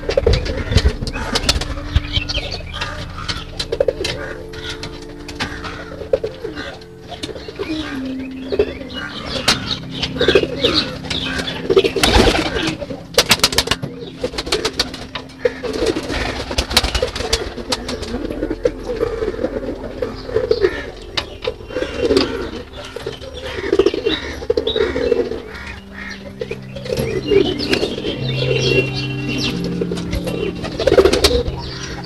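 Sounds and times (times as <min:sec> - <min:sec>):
birds pecking at feed: 0:00.0 - 0:28.7
pigeons cooing: 0:00.0 - 0:32.0
wings fluttering: 0:11.3 - 0:18.4.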